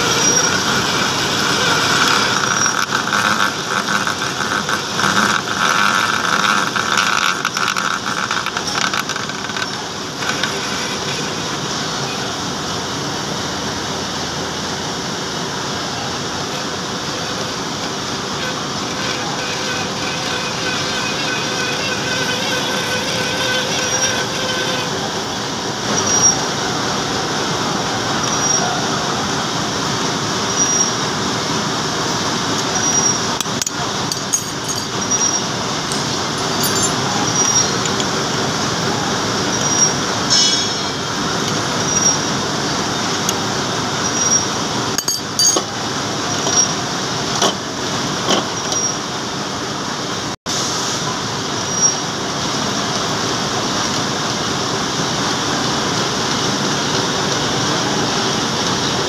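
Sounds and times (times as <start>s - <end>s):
metal lathe cutting steel: 0.0s - 13.4s, 15.6s - 49.0s
metal chips clinking: 33.4s - 38.2s, 45.0s - 45.7s.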